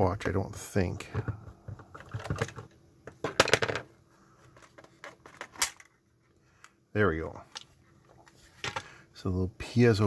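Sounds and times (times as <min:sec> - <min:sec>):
plastic case clicks and clatter: 0:01.0 - 0:03.9, 0:04.5 - 0:05.9.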